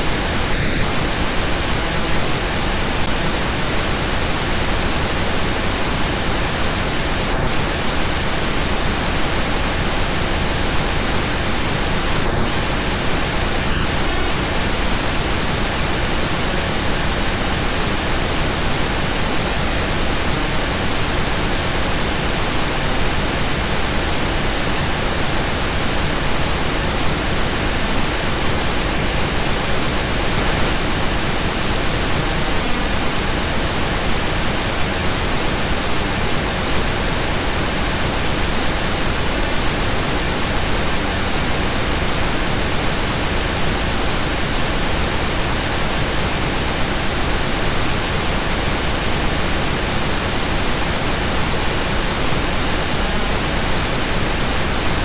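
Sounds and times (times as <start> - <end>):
steady hiss of noise: 0.0 - 55.0.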